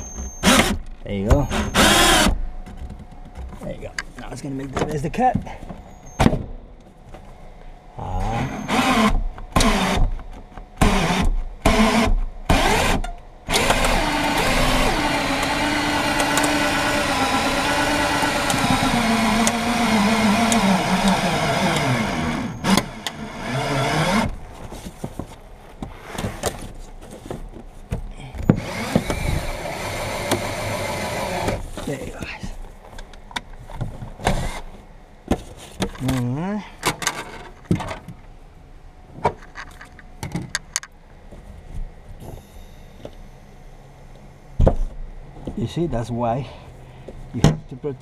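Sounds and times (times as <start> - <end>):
cordless drill motor winding wire: 1.5 - 2.4, 8.3 - 10.0, 10.8 - 24.4, 28.5 - 31.6.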